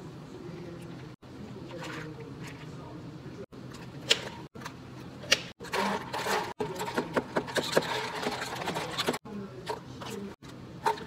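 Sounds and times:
ice rattling in plastic cups: 5.7 - 9.2.

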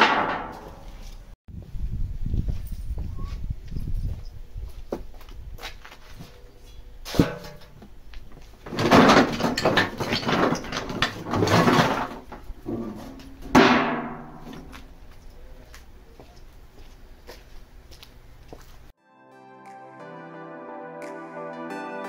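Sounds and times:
wood clattering in metal bin: 0.0 - 0.9, 7.1 - 7.8, 8.6 - 14.8.

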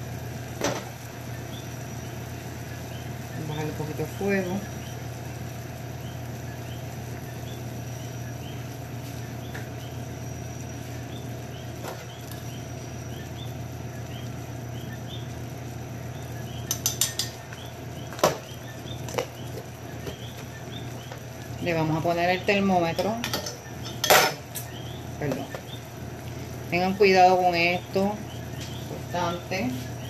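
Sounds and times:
syrup boiling in a pot: 0.0 - 22.9
low hum: 0.0 - 30.0.

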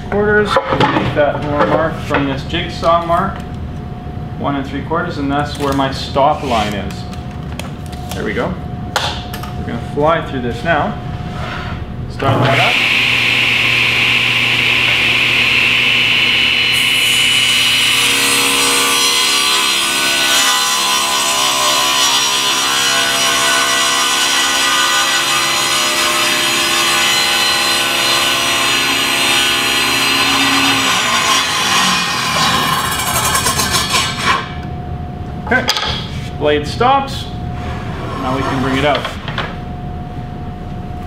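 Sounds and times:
table saw cutting wood: 12.3 - 34.6.

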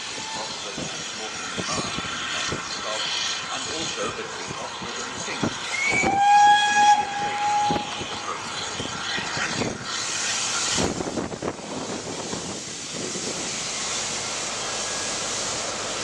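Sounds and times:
steam hiss: 0.0 - 16.0
steam whistle blast: 5.8 - 8.0.

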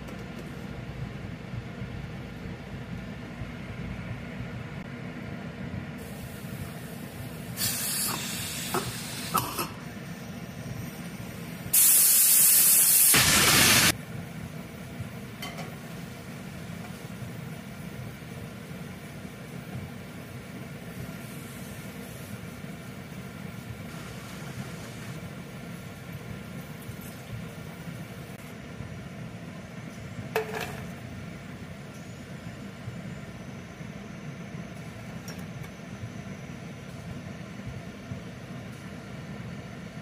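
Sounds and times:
pressure cooker venting steam: 6.0 - 14.0, 20.9 - 28.3.

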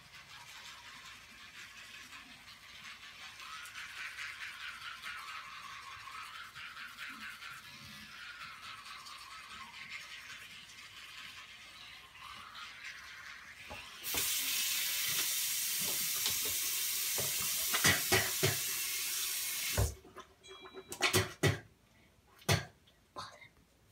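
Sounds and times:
tap water running into sink: 9.0 - 20.3.

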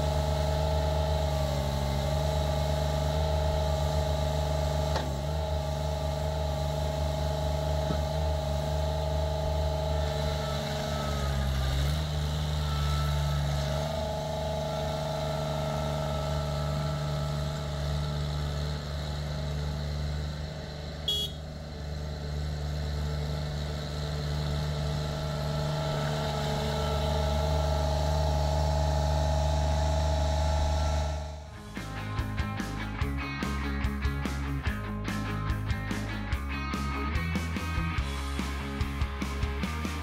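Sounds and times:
diesel engine running: 0.0 - 40.0.

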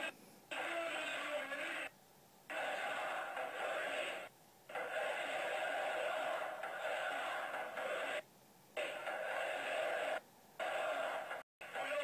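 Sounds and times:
crowd chanting in unison: 2.5 - 8.2, 8.9 - 11.4.

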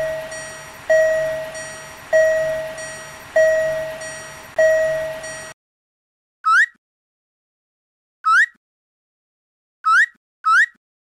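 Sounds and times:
railroad crossing bell dinging: 0.0 - 5.6.

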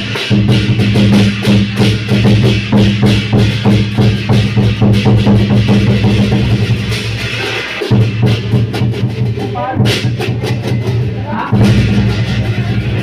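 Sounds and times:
crash cymbals: 0.0 - 8.9
large drum beating: 0.0 - 13.0.

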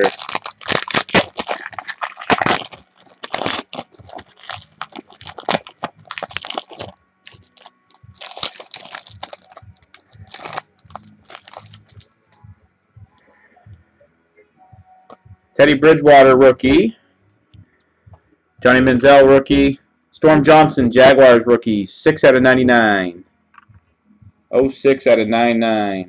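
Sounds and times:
foil wrapper crinkling: 0.0 - 12.0.

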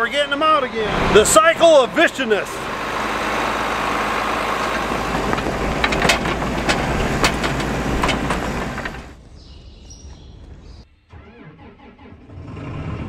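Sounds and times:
tractor diesel engine idling: 0.0 - 9.2.

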